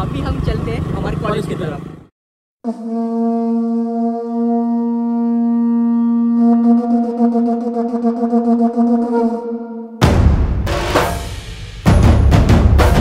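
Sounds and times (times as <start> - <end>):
long blown horn note: 2.6 - 10.0.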